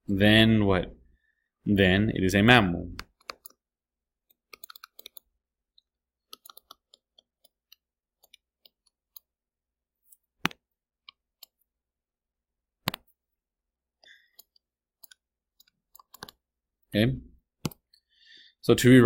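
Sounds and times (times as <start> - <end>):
stylus tapping on tablet screen: 10.4 - 11.7, 12.8 - 13.1.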